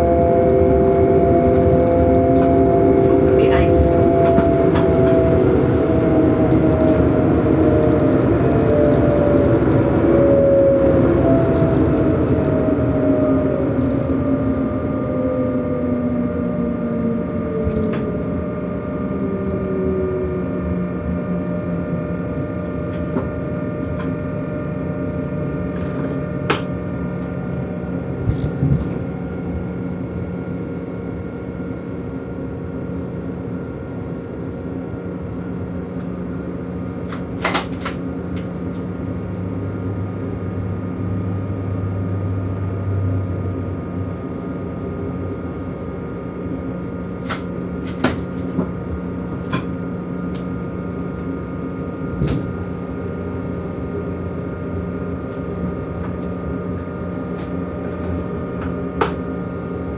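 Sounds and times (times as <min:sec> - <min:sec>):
traction motor running noise: 0:00.0 - 0:30.9
low hum: 0:00.0 - 0:59.9.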